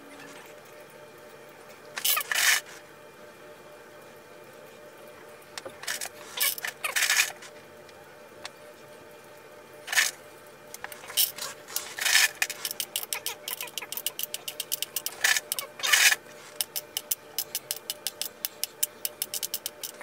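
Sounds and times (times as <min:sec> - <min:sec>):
rustling scrapes: 0:11.0 - 0:12.8.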